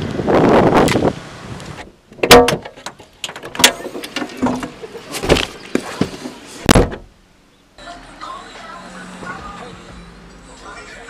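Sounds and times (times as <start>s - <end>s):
sharp knocks and bangs: 2.2s - 5.5s
car doors and hatch shutting: 3.4s - 7.1s.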